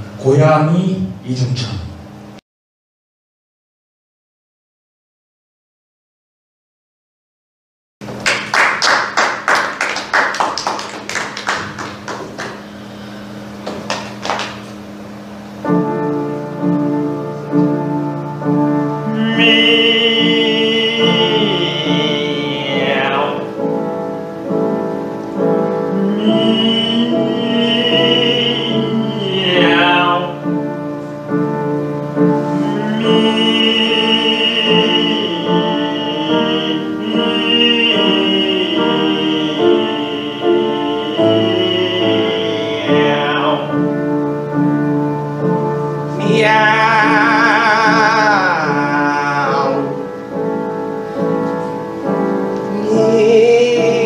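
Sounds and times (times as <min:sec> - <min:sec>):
classical piano: 0:08.3 - 0:54.0
operatic singing with vibrato: 0:17.3 - 0:24.5, 0:25.1 - 0:54.0.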